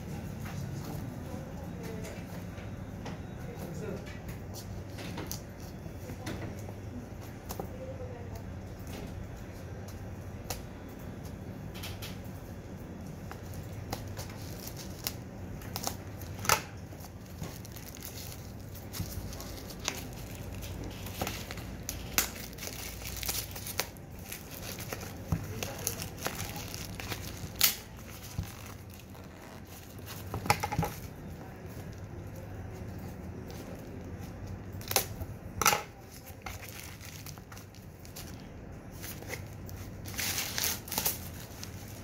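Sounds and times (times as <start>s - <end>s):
plastic shrink-wrap crinkling: 13.3s - 35.3s, 35.9s - 42.0s.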